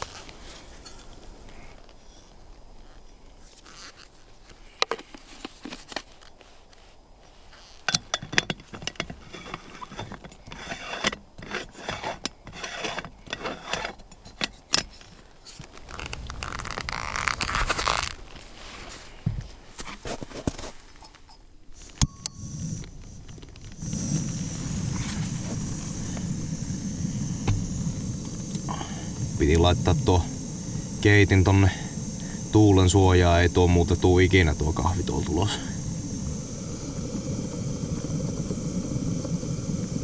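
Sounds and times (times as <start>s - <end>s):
metal clicks and scrapes: 7.8s - 18.4s
steady rushing noise: 15.6s - 19.7s, 22.2s - 40.0s.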